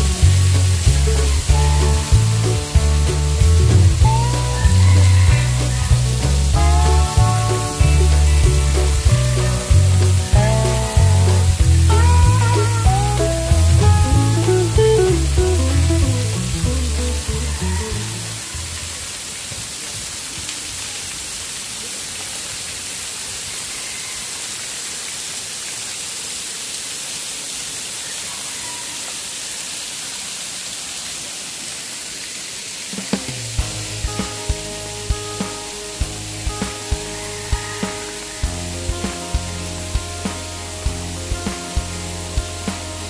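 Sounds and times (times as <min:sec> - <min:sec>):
music with strong beat: 0:00.0 - 0:17.4, 0:33.6 - 0:43.0
guitar music: 0:00.0 - 0:18.8, 0:33.6 - 0:43.0
waterfall splashing into pool: 0:00.0 - 0:43.0.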